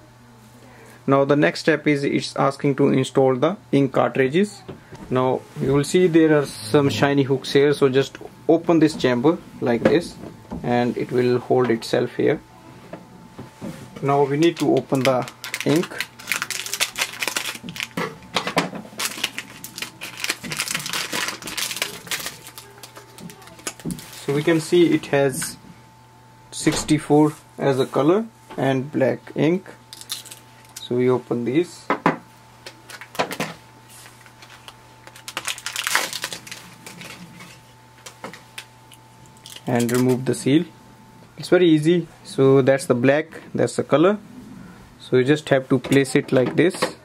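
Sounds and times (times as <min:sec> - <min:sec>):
cardboard packaging crackling and tearing: 0:14.3 - 0:24.8, 0:29.9 - 0:30.8, 0:34.2 - 0:37.5, 0:39.4 - 0:40.2
plastic foil pouch crinkling: 0:14.3 - 0:24.8, 0:29.9 - 0:30.8, 0:34.0 - 0:37.6, 0:38.6 - 0:40.2.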